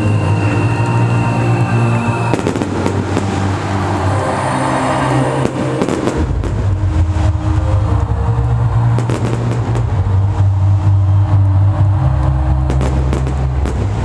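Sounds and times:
bass-heavy electronic dance music: 0:00.0 - 0:14.0.

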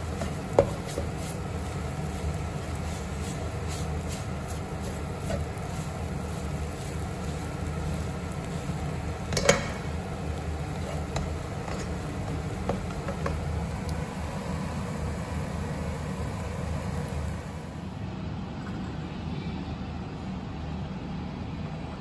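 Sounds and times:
spatula scraping a frying pan: 0:00.0 - 0:13.4
steady low hum: 0:00.0 - 0:22.0.

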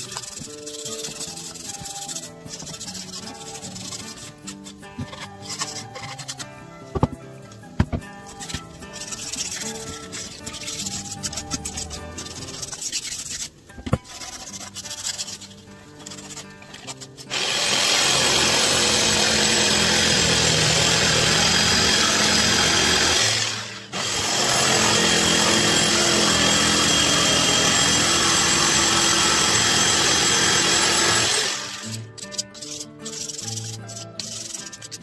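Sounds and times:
power tool running on wood: 0:17.3 - 0:31.9.

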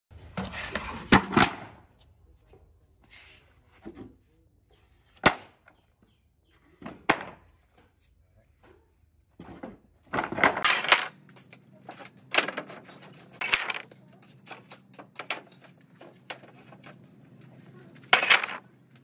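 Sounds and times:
scraping and rustling: 0:09.4 - 0:19.0.

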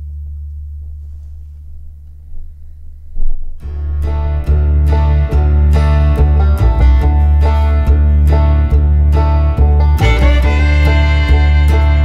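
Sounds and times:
plucked guitar: 0:03.2 - 0:12.0
steady bass with beat: 0:03.6 - 0:12.0.

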